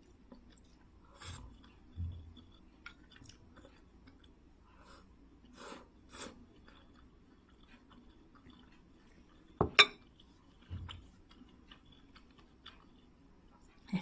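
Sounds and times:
chewing: 0.0s - 14.0s.

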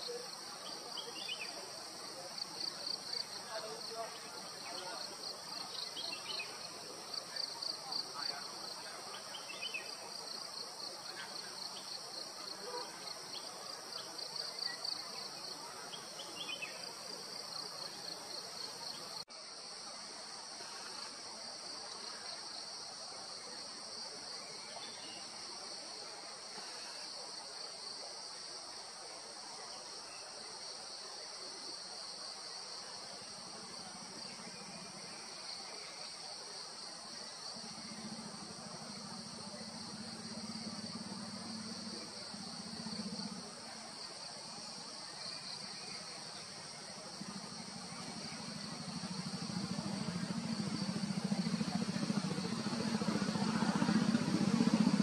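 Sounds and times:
insects buzzing: 29.6s - 55.0s.

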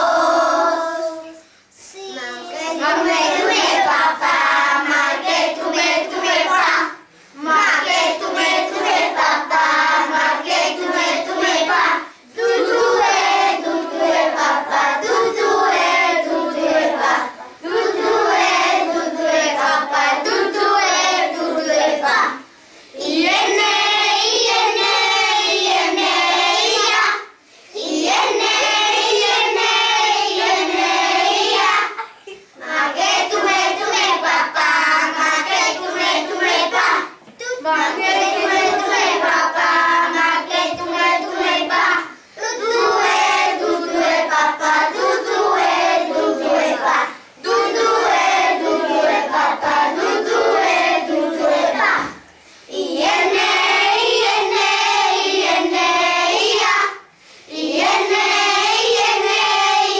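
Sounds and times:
children singing unaccompanied: 0.0s - 59.9s.

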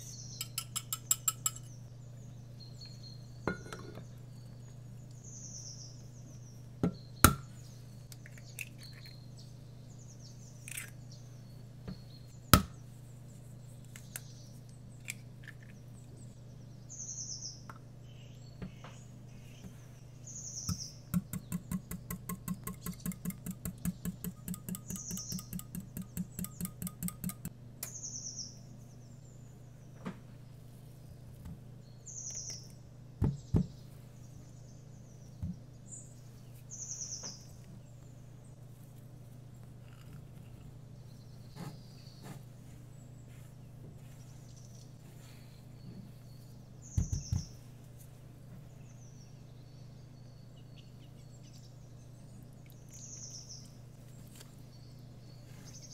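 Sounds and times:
birds chirping: 0.0s - 38.7s, 39.4s - 55.9s
whisk beating eggs in glass jug: 21.4s - 27.5s.

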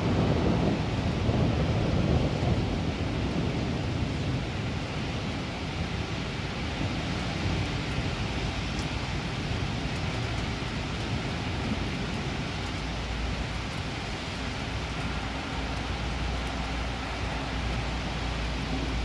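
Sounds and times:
distant thunder rumble: 0.0s - 5.4s
heavy rain falling: 0.0s - 19.0s.

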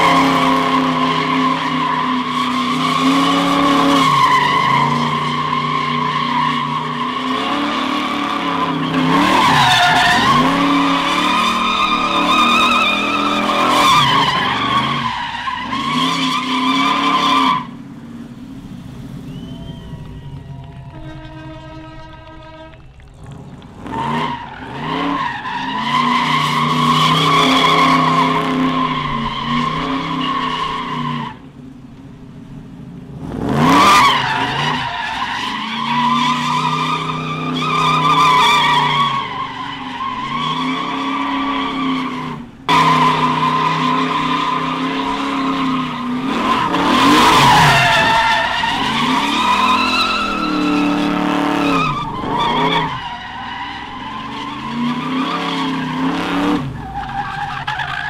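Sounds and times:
tyres squealing: 0.0s - 17.7s, 33.9s - 58.0s
car engine revving: 0.0s - 58.0s.

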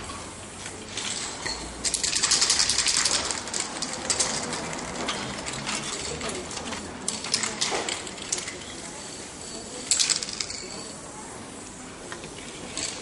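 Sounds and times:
spray can rattling: 0.9s - 10.9s.

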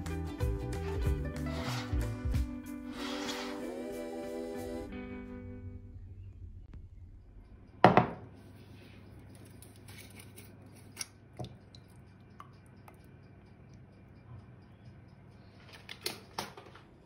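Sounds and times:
glass knocking on countertop: 7.8s - 8.2s.

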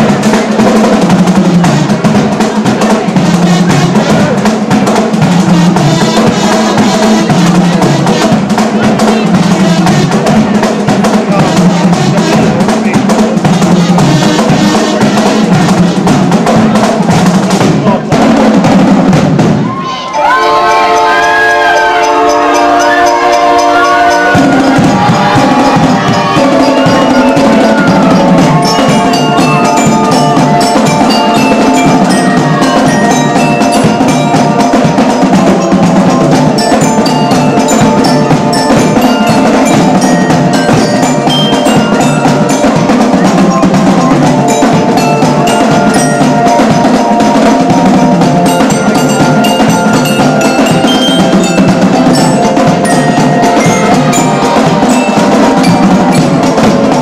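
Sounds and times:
marching band playing: 0.0s - 57.0s
snare drums beating: 0.0s - 57.0s
glockenspiels ringing: 20.1s - 57.0s.

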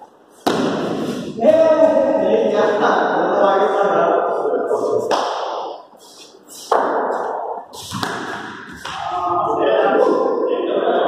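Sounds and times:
cricket bat striking ball: 0.4s - 1.1s, 6.7s - 9.0s
voices shouting in echoing hall: 8.6s - 11.0s.

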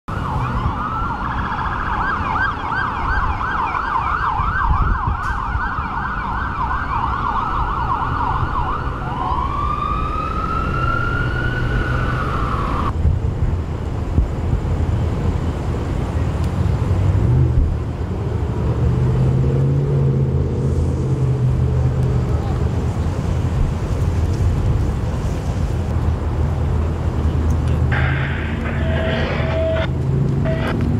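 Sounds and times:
emergency siren yelp and wail: 0.1s - 13.0s.

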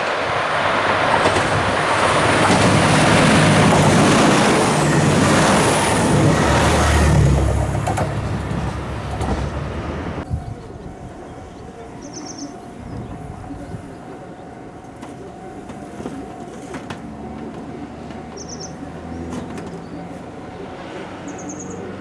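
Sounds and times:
diesel railcar engine rumble: 0.0s - 22.0s
bird chirping trills: 10.3s - 15.4s, 18.2s - 20.3s, 21.2s - 22.0s
level crossing alarm ringing: 10.8s - 22.0s.

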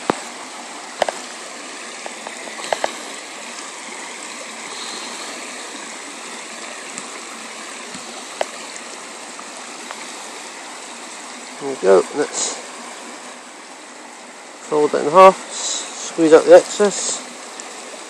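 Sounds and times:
floodwater rushing: 0.0s - 18.0s.

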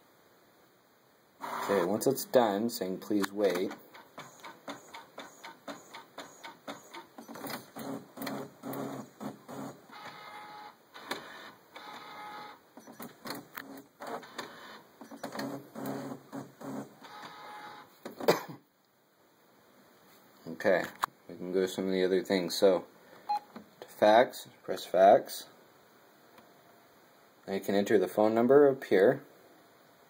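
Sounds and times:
printer mechanism strokes: 1.4s - 2.0s, 3.6s - 17.9s
printer motor whine: 7.8s - 12.6s, 14.0s - 17.9s.

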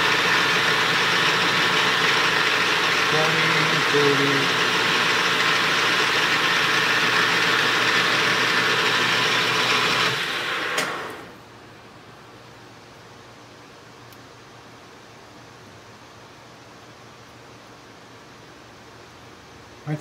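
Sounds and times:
metal lathe running: 0.0s - 11.3s
lathe stopping click: 7.8s - 11.3s.

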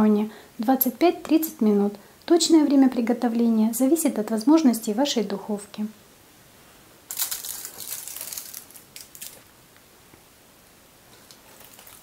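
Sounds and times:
aluminium foil crinkling: 7.1s - 9.5s, 11.2s - 12.0s.

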